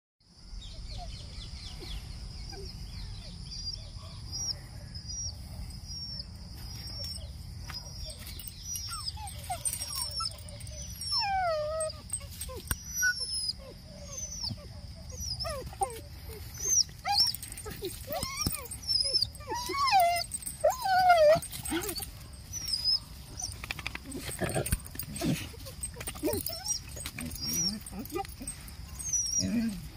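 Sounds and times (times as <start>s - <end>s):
dog whines and yelps: 0.8s - 1.3s, 2.5s - 5.3s, 7.8s - 29.9s
steady high chirping: 15.2s - 24.0s
dogs scuffling: 19.6s - 29.8s.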